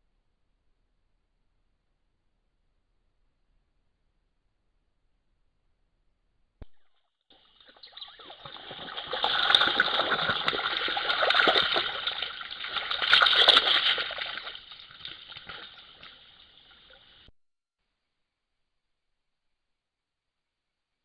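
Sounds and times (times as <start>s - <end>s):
animal splashing through water: 7.4s - 17.3s.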